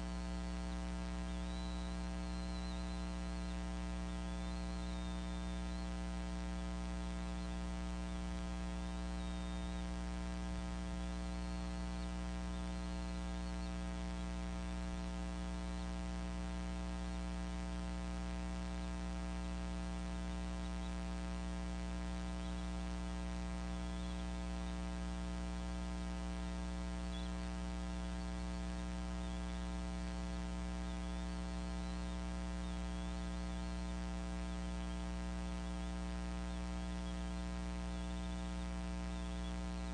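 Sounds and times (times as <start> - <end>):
electrical mains hum: 0.0 - 39.9.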